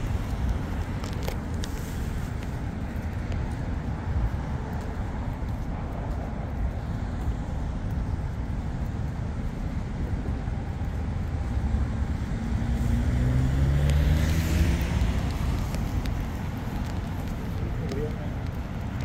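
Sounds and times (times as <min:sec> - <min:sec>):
city traffic rumble: 0:00.0 - 0:19.0
faint clicks: 0:13.8 - 0:19.0.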